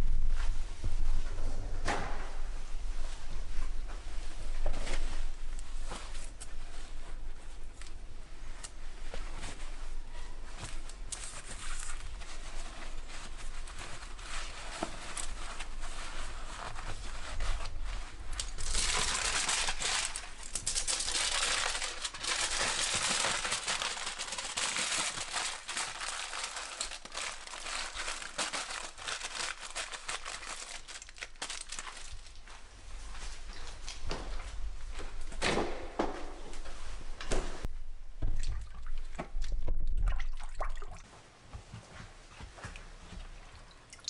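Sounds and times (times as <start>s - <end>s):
foil and paper crinkling: 10.9s - 32.5s
foil being crumpled: 11.1s - 32.5s.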